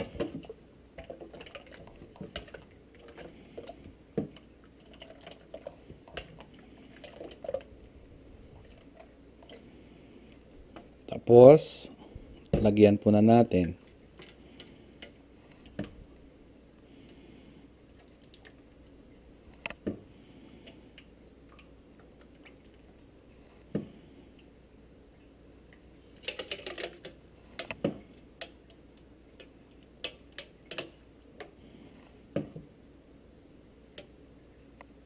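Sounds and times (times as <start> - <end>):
custard mixture pouring: 0.0 - 9.7.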